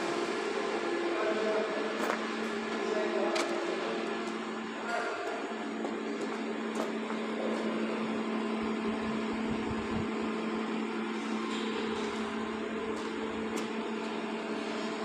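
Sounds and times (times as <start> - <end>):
machine hum: 0.0 - 15.0.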